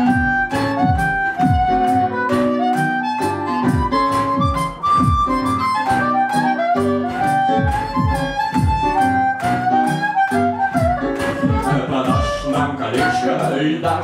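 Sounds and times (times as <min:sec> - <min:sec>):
kick drum beat: 0:00.0 - 0:01.9, 0:03.7 - 0:05.5, 0:07.5 - 0:09.0, 0:10.8 - 0:12.5
amplified harmonica melody: 0:00.0 - 0:14.0
band chords: 0:00.0 - 0:14.0.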